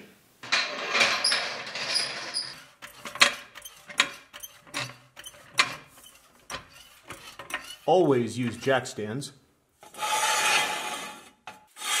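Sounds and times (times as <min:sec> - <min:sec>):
floor jack scraping: 0:00.4 - 0:07.8.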